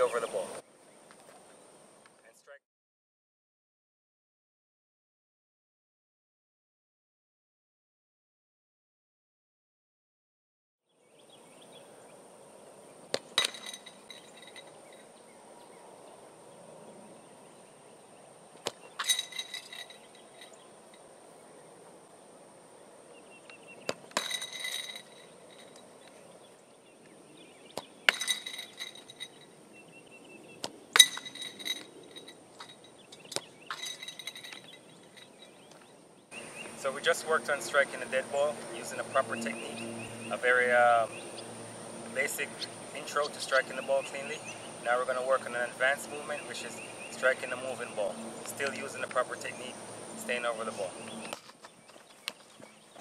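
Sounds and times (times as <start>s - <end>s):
ball hitting metal goal: 13.1s - 14.8s, 18.7s - 20.6s, 23.9s - 25.8s, 28.1s - 29.4s, 31.0s - 35.4s.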